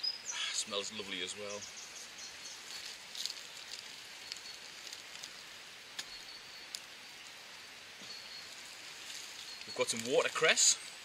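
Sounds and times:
plants being picked clicks: 2.6 - 7.3, 8.0 - 11.0.

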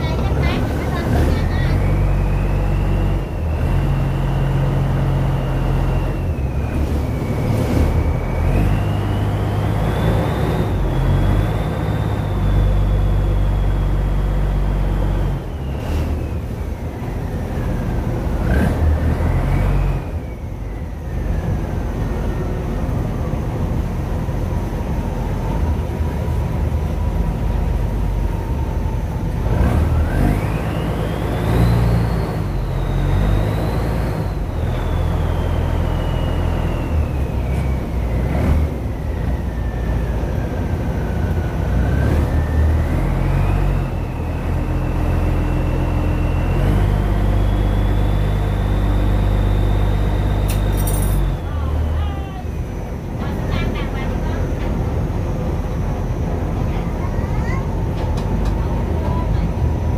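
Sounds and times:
boat engine running: 0.0 - 43.8.

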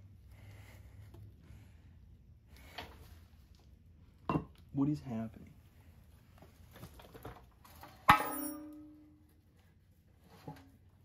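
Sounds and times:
sharp metallic clang: 8.0 - 9.0.

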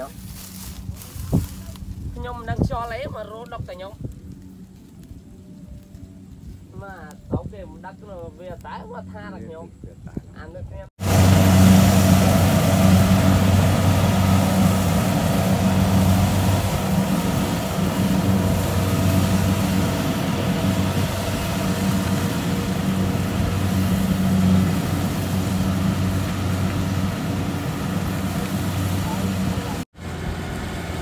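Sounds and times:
combine harvester engine hum: 11.0 - 31.0.

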